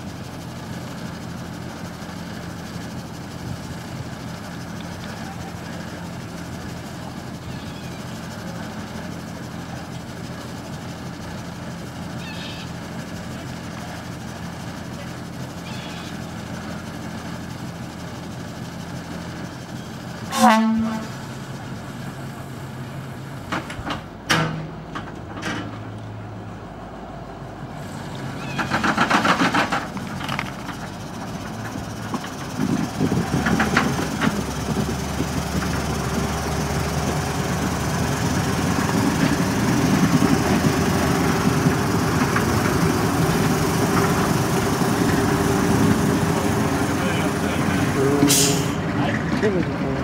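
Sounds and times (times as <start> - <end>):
railcar engine idling: 0.0 - 50.0
wheels on rails: 27.9 - 50.0.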